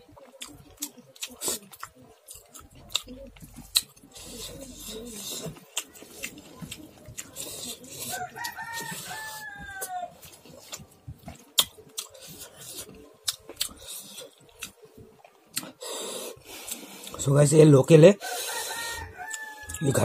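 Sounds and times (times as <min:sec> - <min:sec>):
rooster crowing: 0:08.1 - 0:10.2, 0:18.2 - 0:20.0
wet clicks of eating by hand: 0:11.3 - 0:12.1.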